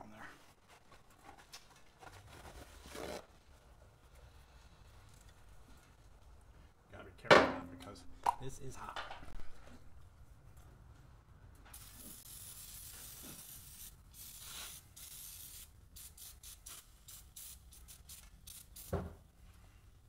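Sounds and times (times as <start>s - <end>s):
short aerosol spurts: 11.7s - 19.0s
aerosol can spraying hiss: 11.7s - 19.1s.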